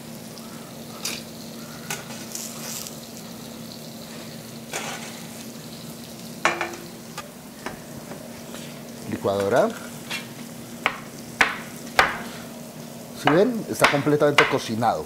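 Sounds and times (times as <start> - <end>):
apples sizzling in a skillet: 0.0 - 15.0
metal baking tray clanking: 6.5 - 7.0, 13.3 - 14.7.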